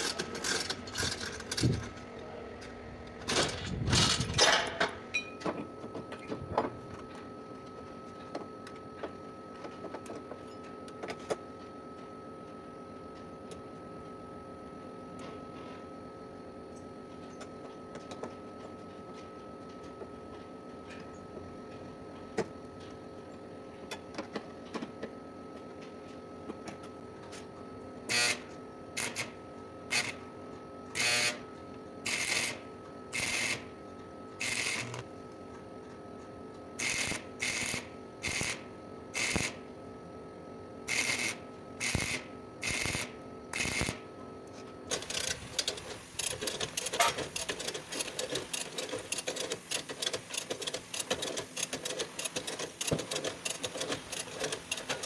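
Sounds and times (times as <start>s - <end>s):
welder crackling: 40.9s - 44.0s, 44.9s - 55.0s.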